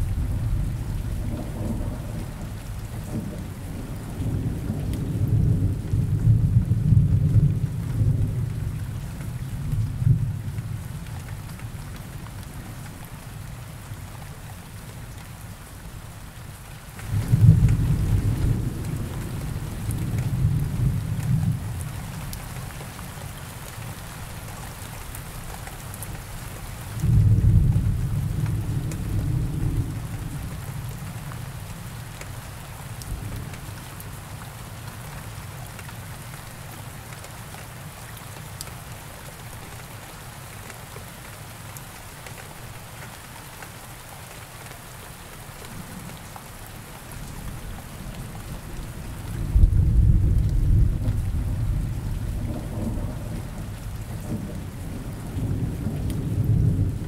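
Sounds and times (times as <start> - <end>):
thunder rumbling: 0.0 - 8.6, 48.1 - 57.0
steady rain: 0.0 - 57.0.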